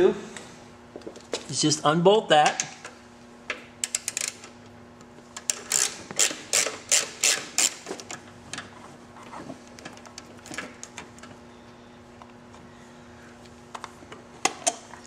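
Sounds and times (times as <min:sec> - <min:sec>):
hand ratchet clicking: 0:03.8 - 0:04.5, 0:05.4 - 0:07.8.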